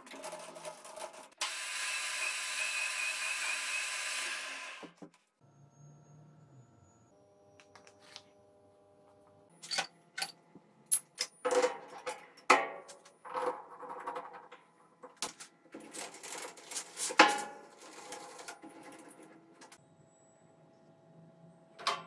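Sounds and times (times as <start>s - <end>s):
steel tool parts clinking: 9.6s - 12.3s.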